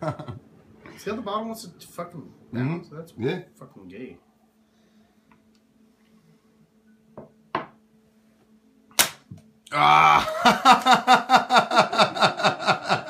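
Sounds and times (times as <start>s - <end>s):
bill snapping sharp crack: 9.0s - 9.4s
man exclaiming and laughing: 9.7s - 11.0s.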